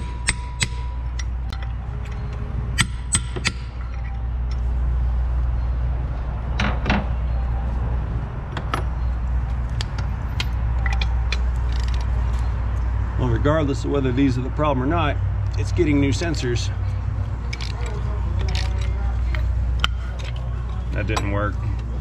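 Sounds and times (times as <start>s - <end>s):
hammer striking a chisel: 0.0s - 1.7s, 2.8s - 3.8s.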